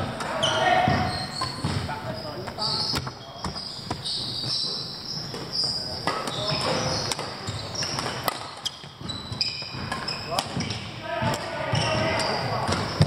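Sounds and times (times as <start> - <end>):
shoes squeaking on wooden floor: 0.0 - 13.0
rackets striking shuttlecock: 5.3 - 13.0.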